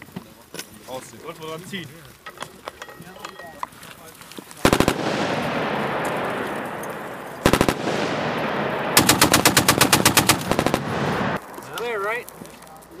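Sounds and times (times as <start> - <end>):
heavy machine gun bursts: 4.7 - 6.0, 7.4 - 8.3, 8.9 - 11.4
gunshot echoes: 4.7 - 11.4.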